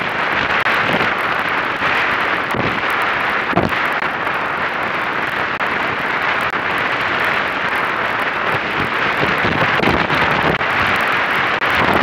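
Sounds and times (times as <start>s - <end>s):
wind noise on microphone: 0.0s - 12.0s.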